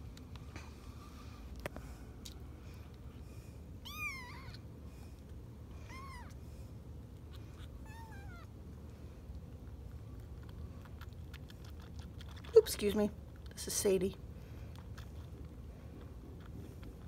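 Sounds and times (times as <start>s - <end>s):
kitten meowing: 3.8s - 4.6s, 5.8s - 6.4s, 7.6s - 8.5s.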